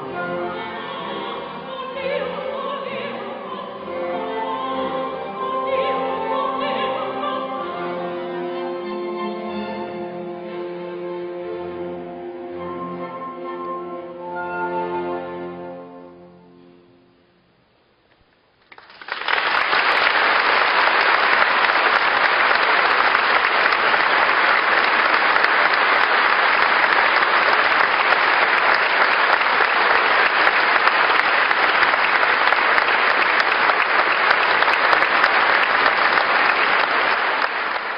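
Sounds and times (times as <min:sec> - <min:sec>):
audience applause: 0:18.6 - 0:37.9.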